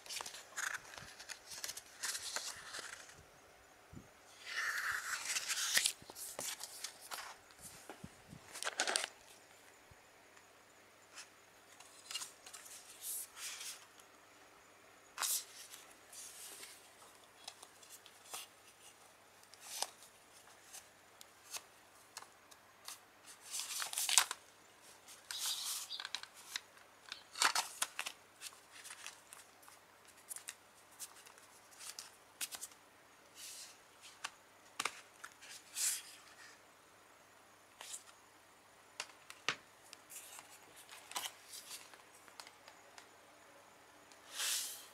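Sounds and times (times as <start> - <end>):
paper booklet rustling: 0.0 - 3.2, 4.4 - 9.6, 15.2 - 32.8, 39.0 - 42.8.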